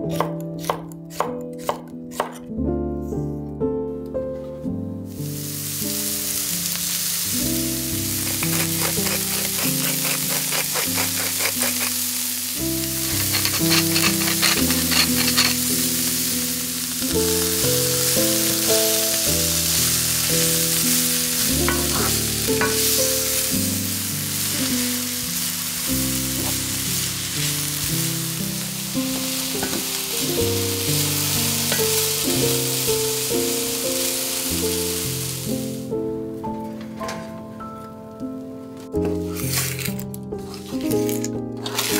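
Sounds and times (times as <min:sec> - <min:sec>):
soft background music: 0:00.0 - 0:41.9
vegetables sizzling in a pan: 0:05.1 - 0:35.9, 0:40.5 - 0:41.9
wooden spatula stirring: 0:08.2 - 0:12.0, 0:13.1 - 0:15.6.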